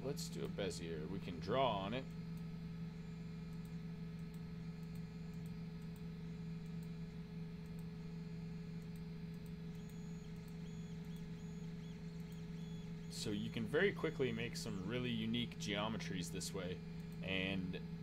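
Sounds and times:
low electrical hum: 0.0 - 18.0
faint mouse clicks: 3.5 - 7.0, 7.6 - 7.9, 8.7 - 12.9.

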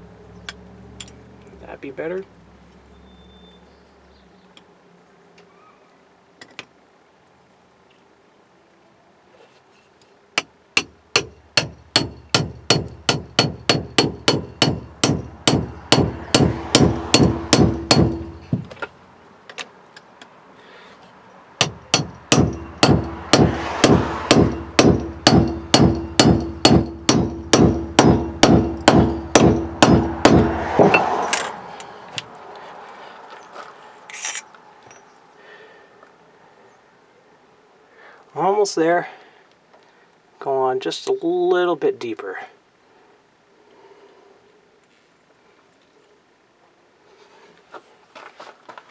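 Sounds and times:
hammer striking metal sockets: 10.8 - 18.9, 21.6 - 32.4.

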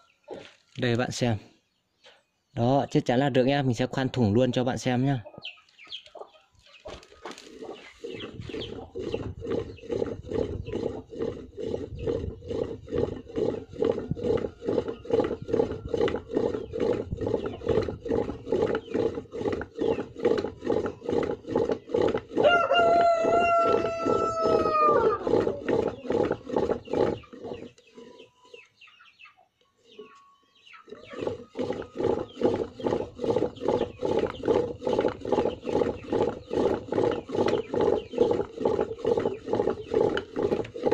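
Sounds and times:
rooster crowing: 22.4 - 25.3.

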